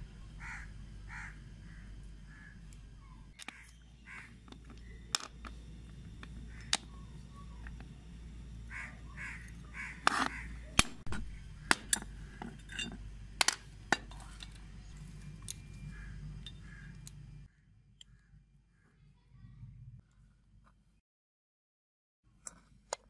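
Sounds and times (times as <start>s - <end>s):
crows cawing: 0.4s - 2.7s, 3.4s - 5.0s, 6.3s - 7.6s, 8.6s - 10.8s, 11.6s - 12.6s, 15.8s - 18.9s
steel parts clinking: 9.4s - 15.8s, 16.4s - 17.2s.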